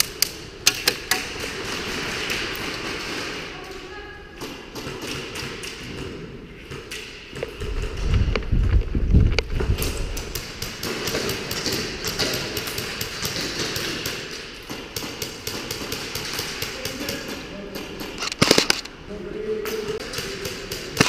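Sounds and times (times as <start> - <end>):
airsoft gunfire: 0.6 - 3.5, 18.2 - 18.9
loud airsoft gun burst: 18.2 - 18.9.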